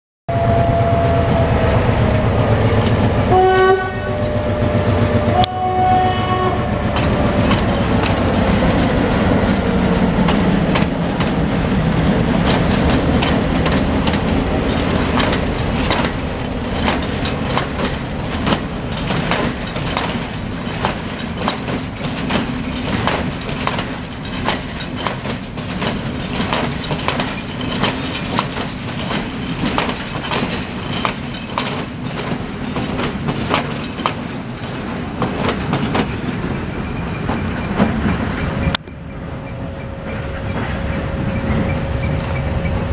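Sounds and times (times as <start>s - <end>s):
locomotive horn blasts: 0.3s - 1.8s, 2.8s - 7.0s
diesel locomotive engine: 0.3s - 42.9s
train wheels clacking: 0.8s - 42.9s.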